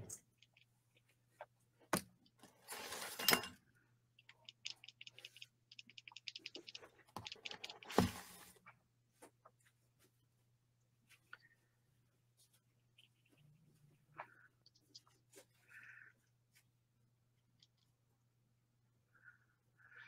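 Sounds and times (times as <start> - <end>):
paper rustling: 2.5 - 3.4.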